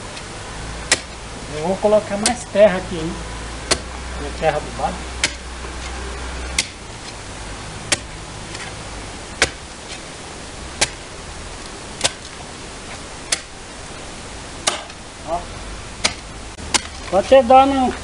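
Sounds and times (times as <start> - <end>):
hoe chopping into soil: 0.8 - 1.2, 2.1 - 2.4, 3.6 - 4.6, 5.2 - 6.8, 7.9 - 8.7, 9.4 - 10.0, 10.8 - 11.0, 12.0 - 12.3, 13.3 - 13.6, 14.6 - 15.0, 16.0 - 17.4.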